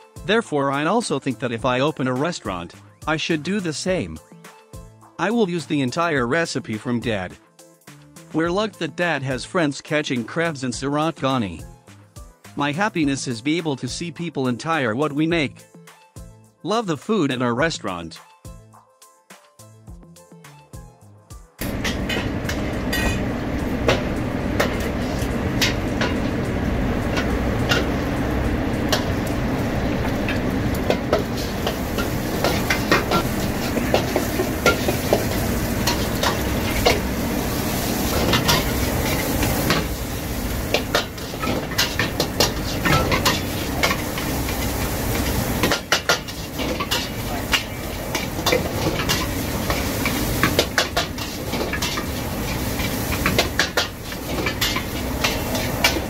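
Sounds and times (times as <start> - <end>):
food sizzling: 21.6 - 56.0
gas flame rushing: 21.6 - 56.0
metal spatula scraping a wok: 24.6 - 26.3, 31.0 - 37.1, 37.7 - 40.0, 40.6 - 56.0.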